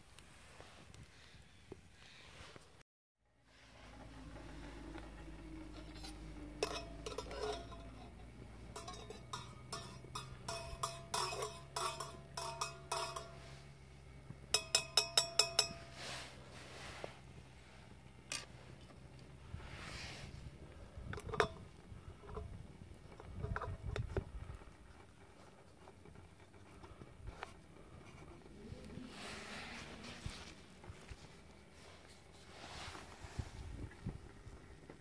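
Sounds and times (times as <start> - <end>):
spoon clinking in metal mug: 5.8 - 13.7, 14.5 - 16.0.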